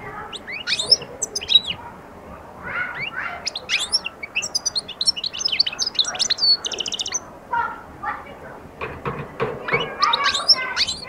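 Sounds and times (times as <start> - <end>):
goldfinch singing: 0.1 - 1.9, 2.7 - 7.3, 9.4 - 11.0.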